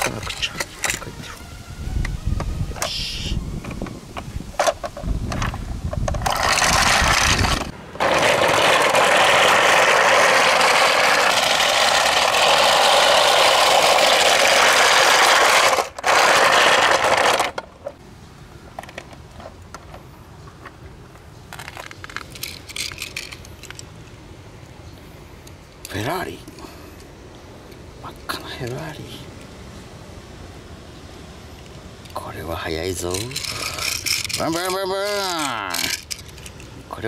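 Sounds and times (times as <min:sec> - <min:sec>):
plastic wheels rattling on asphalt: 0:04.6 - 0:18.0, 0:21.5 - 0:23.9, 0:32.8 - 0:36.7
toys clicking and tapping: 0:33.0 - 0:36.7.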